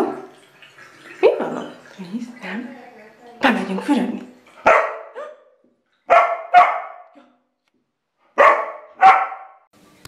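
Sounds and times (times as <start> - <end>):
puppy barking: 4.6 - 7.2, 8.3 - 9.7.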